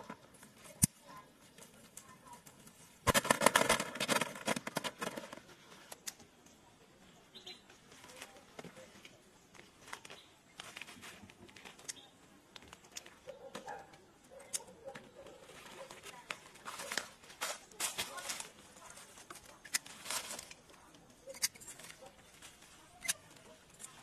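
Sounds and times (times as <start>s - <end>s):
leafy branches rustling: 15.2s - 20.9s, 21.8s - 24.0s.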